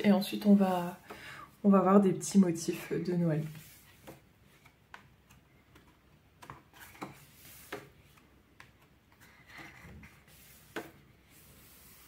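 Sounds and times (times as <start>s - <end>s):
paper pages rustling: 5.7s - 12.0s.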